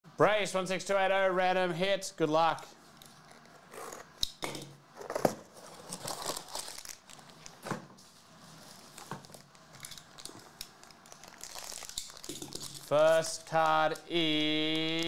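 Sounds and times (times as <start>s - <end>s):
foil pouch crinkling and tearing: 5.7s - 7.6s, 8.6s - 14.0s.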